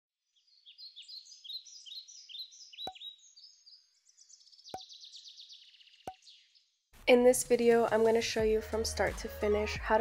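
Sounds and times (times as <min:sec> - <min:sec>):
faint songbird chirping: 0:00.2 - 0:06.9.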